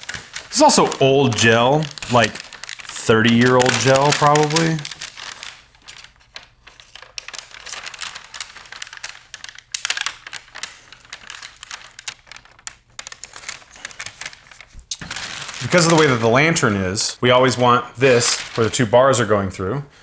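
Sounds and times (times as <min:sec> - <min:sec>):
scissors cutting plastic film: 0:00.0 - 0:05.7
plastic film crinkling: 0:00.0 - 0:19.3.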